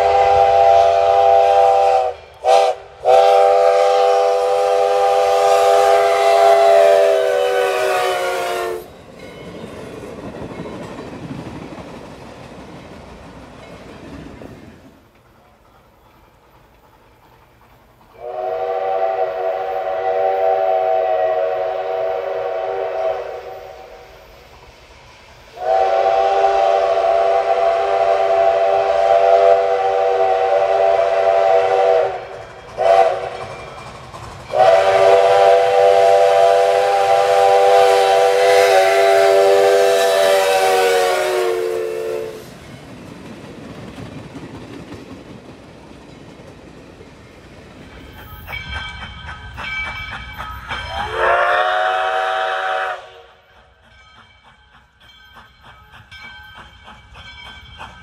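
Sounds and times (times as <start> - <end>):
steam whistle blasts: 0.0 - 8.9, 18.2 - 24.2, 25.5 - 33.4, 34.5 - 42.5, 50.9 - 53.5
train rumbling and clacking on rails: 0.0 - 58.0.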